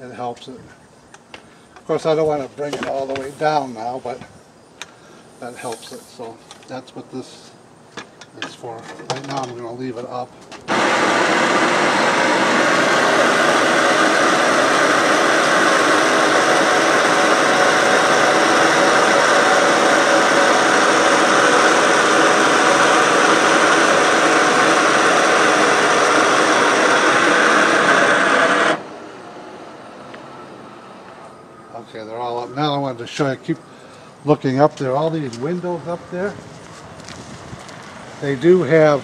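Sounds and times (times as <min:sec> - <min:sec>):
electric motor running: 0:10.7 - 0:28.9.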